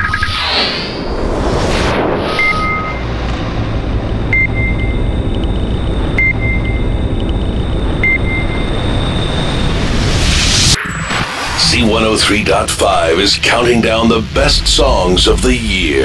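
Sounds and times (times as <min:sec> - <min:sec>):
deep electronic rumble: 0:00.0 - 0:16.0
short electronic beep with echoes: 0:02.4 - 0:03.1, 0:04.3 - 0:05.1.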